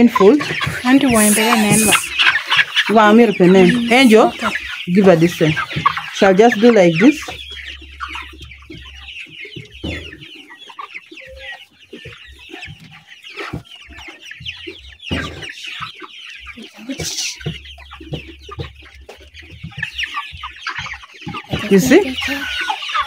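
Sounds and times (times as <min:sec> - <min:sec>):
young chickens clucking and calling: 0:00.0 - 0:23.0.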